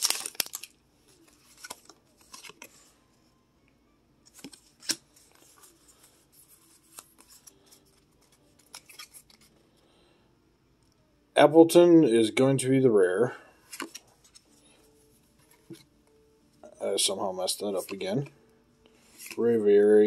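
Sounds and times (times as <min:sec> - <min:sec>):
cards clicking and rustling: 0:00.0 - 0:02.9, 0:04.3 - 0:09.5, 0:13.7 - 0:14.4, 0:19.1 - 0:19.4.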